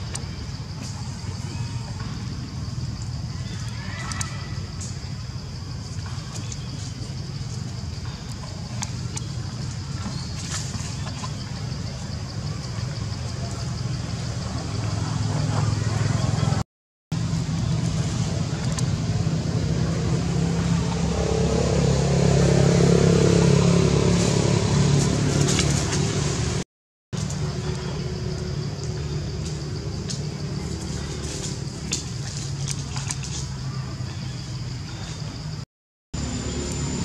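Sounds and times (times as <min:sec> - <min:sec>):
engine droning: 0:17.2 - 0:26.6, 0:36.2 - 0:37.0.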